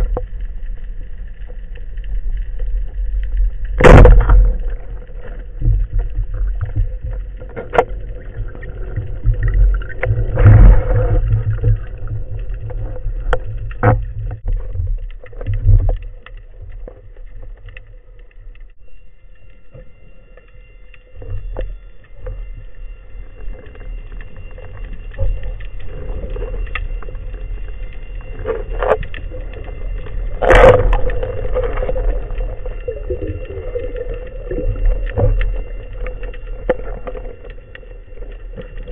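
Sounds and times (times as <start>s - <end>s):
underwater rumble of moving water: 0.0s - 38.9s
sharp knocks underwater: 3.7s - 16.0s, 30.4s - 32.9s.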